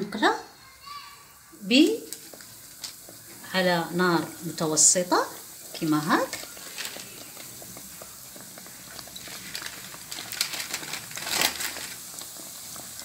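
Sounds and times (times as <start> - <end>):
dough deep-frying in hot oil: 0.0 - 13.0
crackling oil pops: 2.0 - 3.2.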